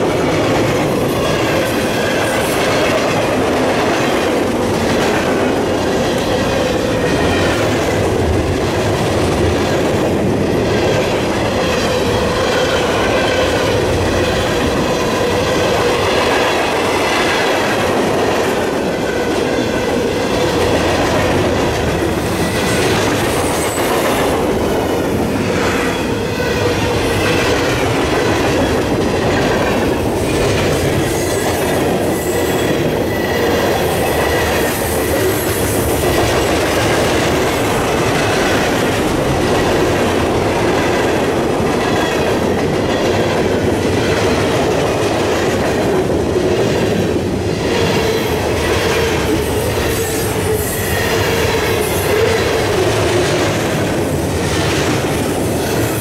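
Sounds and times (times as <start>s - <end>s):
train wheels clattering on rails: 0.0s - 56.0s.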